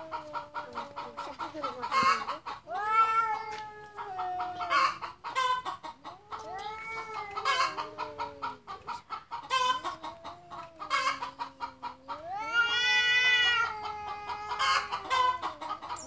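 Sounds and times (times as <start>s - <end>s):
cats caterwauling: 0.0s - 16.0s
short sharp cat cries: 2.7s - 4.3s, 12.3s - 15.3s.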